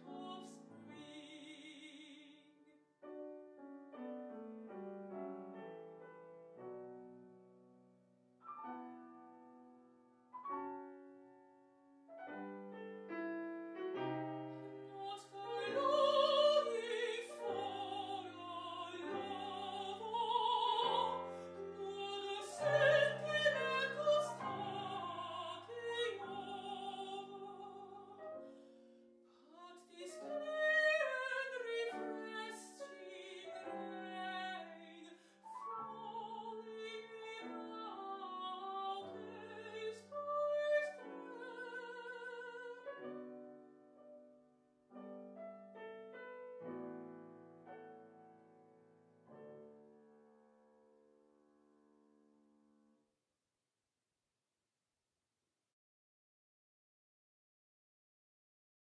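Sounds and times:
woman singing with vibrato: 0.0s - 2.4s, 14.9s - 28.2s, 29.5s - 35.2s, 35.8s - 42.9s
grand piano accompaniment: 0.0s - 52.8s.

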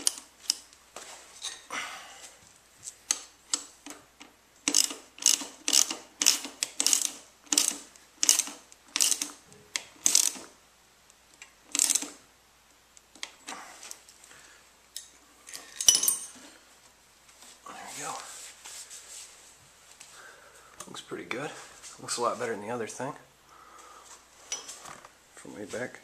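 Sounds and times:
cable ties ratcheting: 4.6s - 10.5s, 11.4s - 12.2s.

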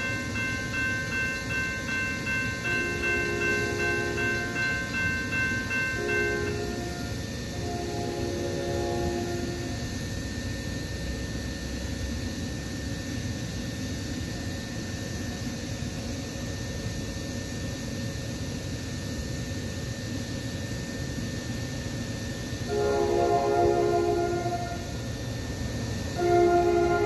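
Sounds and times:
faint high steady tone: 0.0s - 10.1s, 22.7s - 25.2s, 26.2s - 27.0s.

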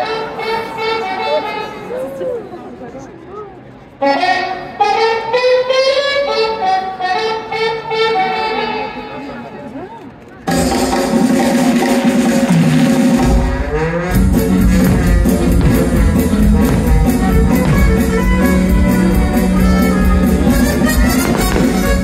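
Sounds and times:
loud instrumental music: 10.5s - 22.0s
steady drum beat: 10.5s - 22.0s.

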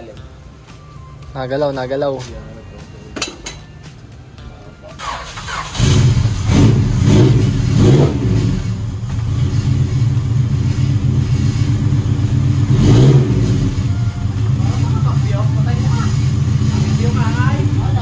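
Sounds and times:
car engine starting and revving: 5.0s - 18.0s.

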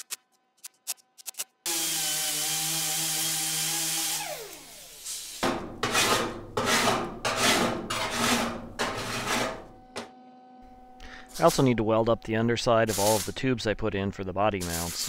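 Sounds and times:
angle grinder grinding steel: 1.7s - 9.9s
file scraping on metal: 5.5s - 9.8s.

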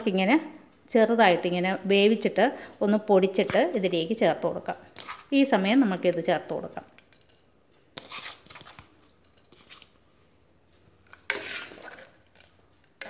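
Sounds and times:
spoon scraping metal pot: 5.0s - 5.3s, 8.0s - 9.9s, 11.0s - 13.0s.

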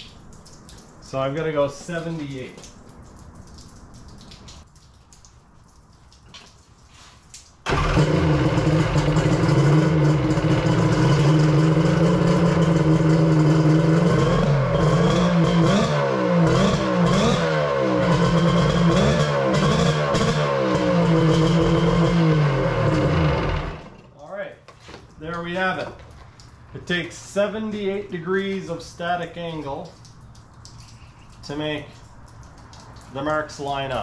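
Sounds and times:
jet ski engine revving: 7.7s - 24.0s.

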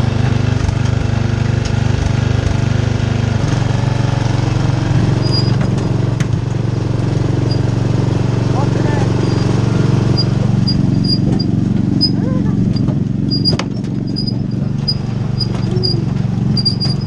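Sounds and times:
riding mower engine running: 0.0s - 17.0s
wagon knocking: 10.2s - 17.0s.

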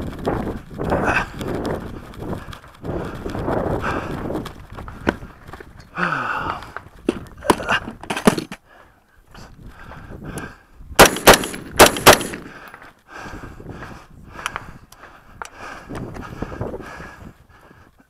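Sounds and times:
rifle handling clatter: 7.0s - 8.6s, 11.0s - 12.8s
rifle shots: 11.0s - 12.5s.

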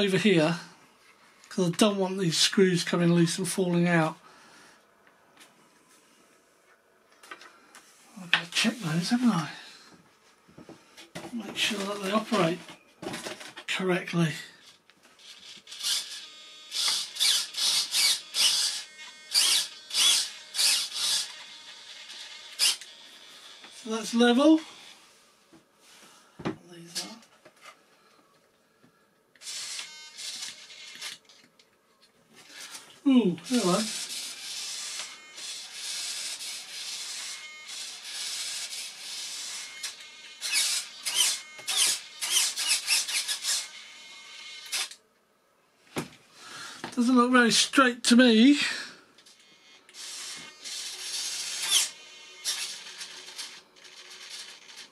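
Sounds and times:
small servos whirring: 14.6s - 25.0s, 29.4s - 31.5s, 32.5s - 45.0s, 49.2s - 54.9s.

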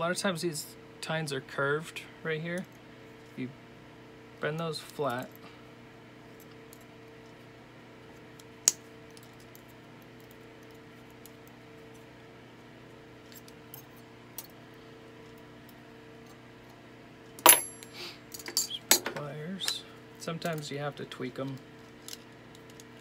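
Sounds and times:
steady hum: 0.0s - 23.0s
ringing metal clink: 17.5s - 17.9s.

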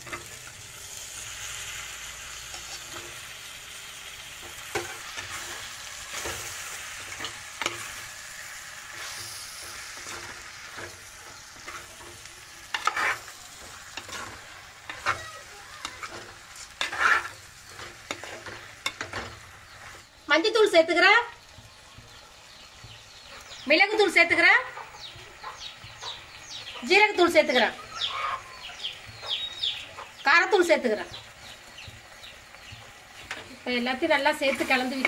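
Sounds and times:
chicken sizzling in oil: 0.0s - 35.0s
metal spoon scraping a pot: 8.9s - 15.2s, 15.8s - 19.4s.

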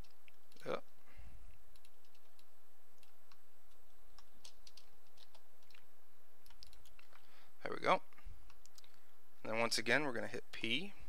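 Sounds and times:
steady background hiss: 0.0s - 11.0s
mouse and keyboard clicks: 4.1s - 7.2s.

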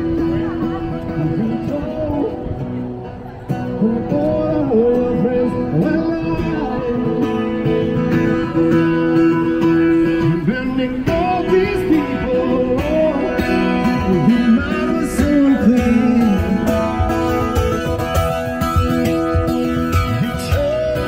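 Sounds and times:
acoustic guitar: 0.0s - 21.0s
person singing: 8.6s - 17.8s, 19.9s - 21.0s.

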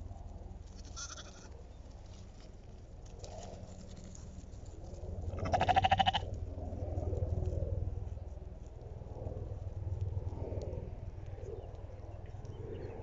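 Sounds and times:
lamb bleating: 0.8s - 1.5s, 5.4s - 6.3s.

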